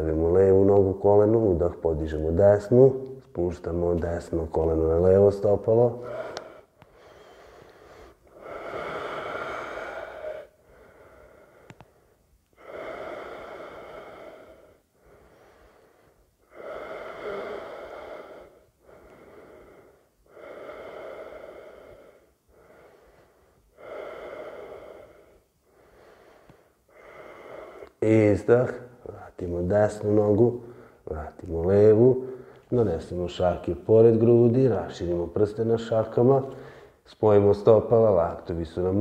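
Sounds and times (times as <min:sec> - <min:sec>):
man breathing deeply: 0:05.9 - 0:28.0, 0:30.5 - 0:31.1, 0:32.2 - 0:32.7, 0:36.5 - 0:37.0.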